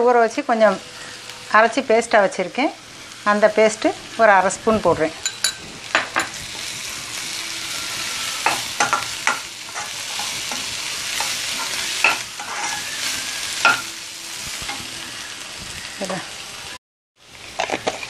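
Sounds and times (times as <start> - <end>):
vegetables sizzling in a wok: 0.0 - 18.0
spatula scraping a wok: 5.2 - 16.2.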